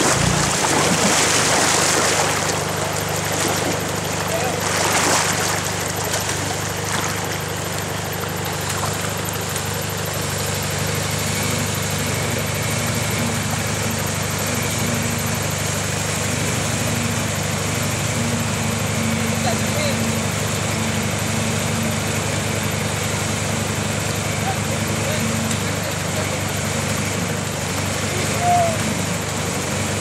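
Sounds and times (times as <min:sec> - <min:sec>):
low hum: 0:00.0 - 0:09.8
diesel engine idling: 0:00.0 - 0:30.0.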